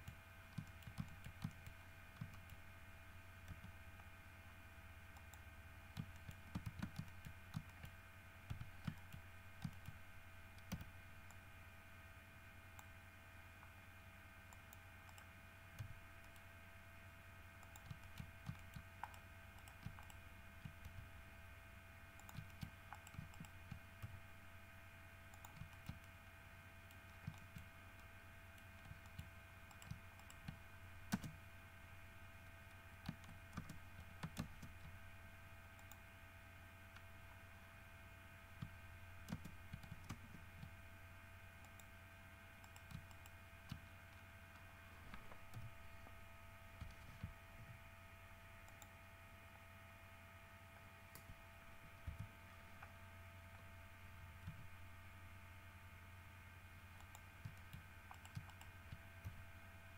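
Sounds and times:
keyboard and mouse clicks: 0.0s - 2.6s, 3.4s - 4.1s, 5.1s - 10.0s, 10.6s - 11.4s, 14.5s - 16.5s, 17.6s - 21.1s, 22.2s - 24.2s, 25.3s - 26.2s, 26.9s - 31.4s, 32.6s - 35.0s, 35.8s - 36.0s, 38.6s - 40.8s, 41.6s - 41.9s, 42.6s - 46.2s, 46.8s - 47.8s, 48.6s - 49.0s, 51.1s - 52.9s, 54.4s - 54.7s, 57.0s - 59.4s
faint steady hum: 0.0s - 59.9s.

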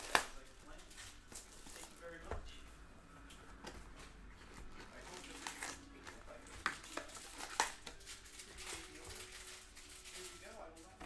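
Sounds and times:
plastic packaging crinkling: 0.0s - 2.2s, 4.4s - 11.0s
faint background talk: 0.1s - 11.0s.

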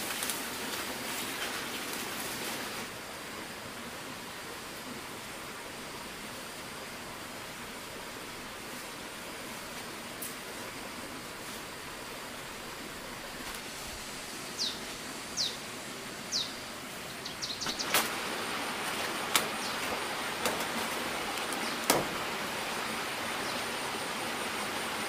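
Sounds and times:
background hiss: 0.0s - 25.0s
sharp knocks: 21.8s - 22.2s.

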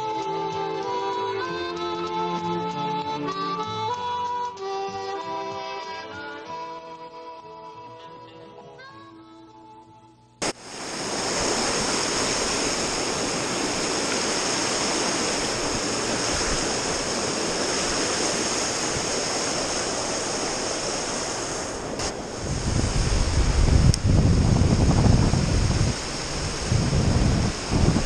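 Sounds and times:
water rushing over rocks: 10.4s - 28.0s
wind buffeting microphone: 10.7s - 28.0s.

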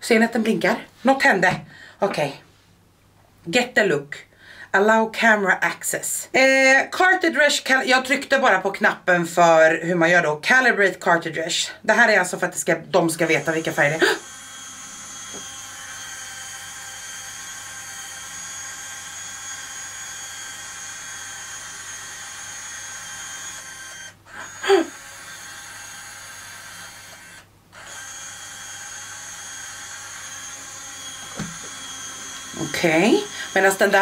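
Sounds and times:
machine motor whirring: 13.3s - 34.0s.

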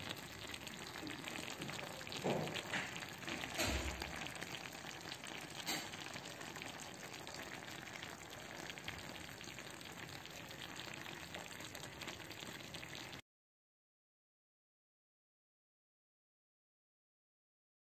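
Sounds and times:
sauce bubbling and sizzling: 0.0s - 13.2s.

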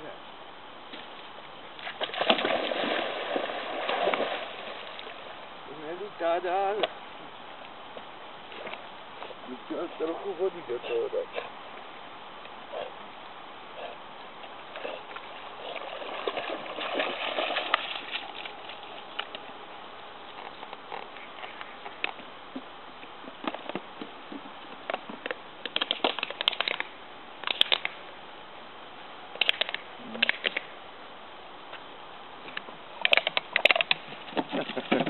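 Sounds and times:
water sloshing around swimming dog: 14.7s - 19.1s.

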